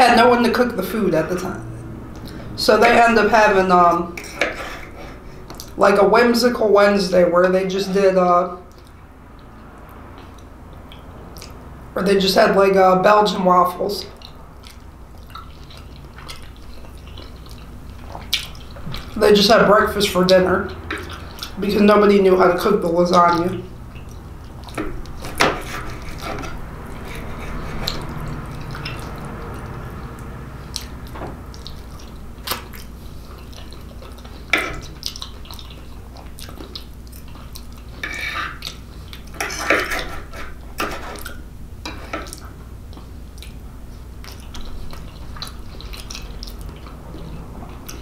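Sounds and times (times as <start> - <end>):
low steady hum: 0.0 - 48.0
wet chewing and lip-smacking: 2.0 - 2.6, 4.2 - 5.8, 8.6 - 11.7, 14.0 - 19.2, 20.2 - 21.6, 23.3 - 48.0
knife and fork scraping plate: 4.2 - 5.2, 25.2 - 28.1, 38.0 - 38.6, 39.4 - 42.3.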